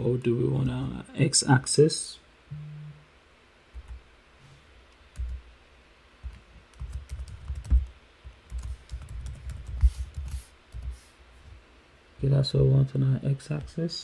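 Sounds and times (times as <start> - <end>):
computer keyboard typing: 5.1 - 5.4, 6.2 - 10.9.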